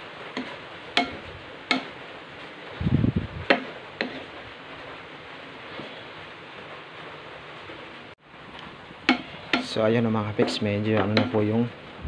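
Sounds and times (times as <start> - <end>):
spatula tapping frying pan: 0.3 - 2.0, 3.5 - 4.3, 9.0 - 9.8, 10.4 - 11.6.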